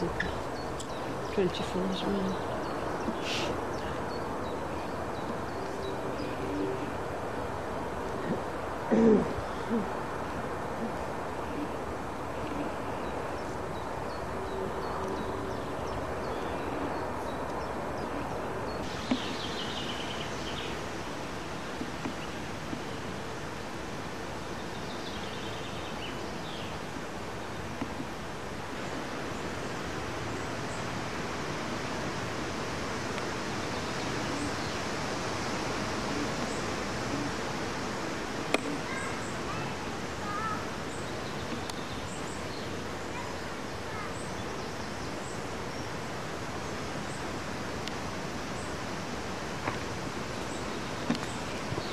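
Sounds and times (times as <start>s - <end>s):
wind hiss: 0.0s - 51.9s.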